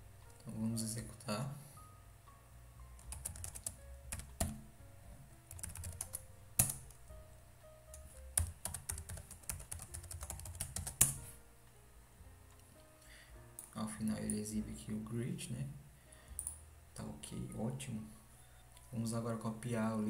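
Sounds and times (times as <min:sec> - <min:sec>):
typing on keyboard: 0:03.0 - 0:04.6, 0:05.5 - 0:07.0, 0:07.9 - 0:11.2.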